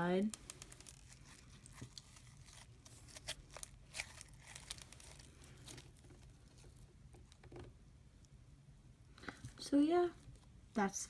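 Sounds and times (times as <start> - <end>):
crunchy slime crackling: 0.3 - 7.4.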